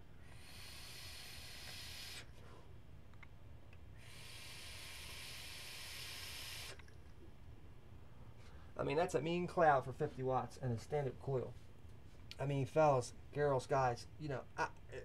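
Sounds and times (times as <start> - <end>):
vapour hissing through tank: 0.3 - 2.3, 4.0 - 6.9.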